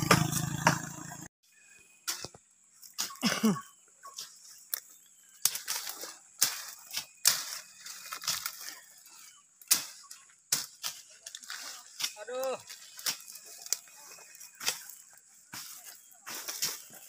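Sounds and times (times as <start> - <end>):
leaves rustling: 1.9 - 17.0
stems cracking and snapping: 4.6 - 17.0.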